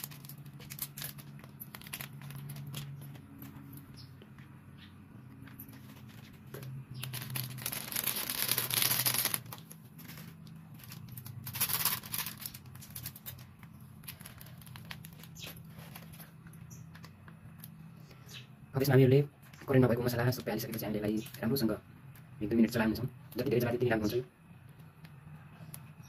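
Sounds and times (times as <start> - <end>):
plastic sachets tearing and crinkling: 0.0 - 3.6, 5.6 - 17.8
low steady hum: 0.0 - 26.0.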